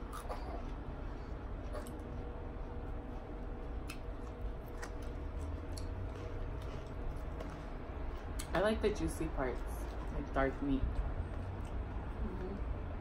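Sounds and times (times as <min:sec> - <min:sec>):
person chewing food: 0:00.0 - 0:08.5, 0:11.1 - 0:12.7
steady low hum: 0:00.0 - 0:13.0.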